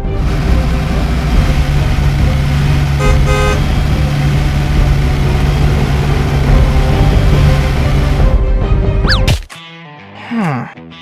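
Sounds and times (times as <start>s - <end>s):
low engine drone: 0.0s - 9.0s
car horn honk: 3.0s - 3.7s.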